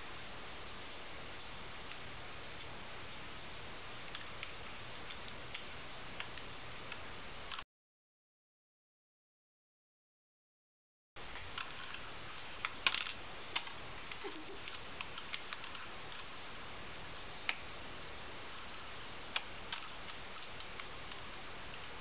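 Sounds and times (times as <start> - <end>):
steady hiss: 0.0 - 7.6, 11.2 - 22.0.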